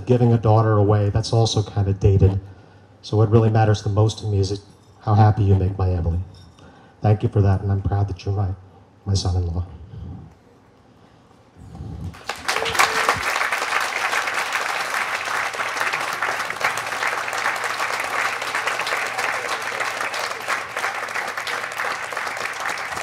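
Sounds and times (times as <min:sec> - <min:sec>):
crowd applauding: 0:12.0 - 0:23.0.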